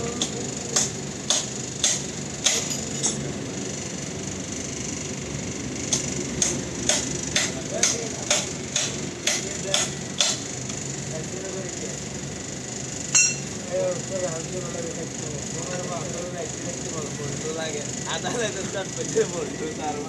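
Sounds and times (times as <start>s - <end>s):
hammer ringing on steel: 13.1s - 13.5s.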